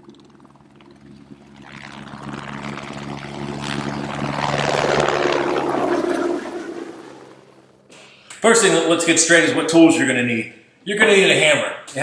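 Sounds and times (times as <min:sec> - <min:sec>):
steady low hum: 0:00.0 - 0:11.4.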